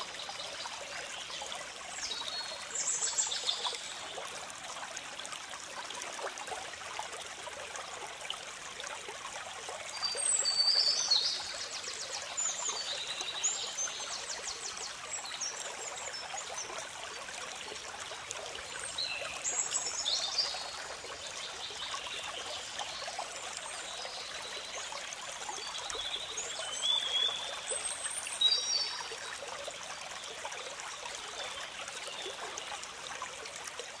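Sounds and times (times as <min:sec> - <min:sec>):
water trickling: 0:00.0 - 0:34.0.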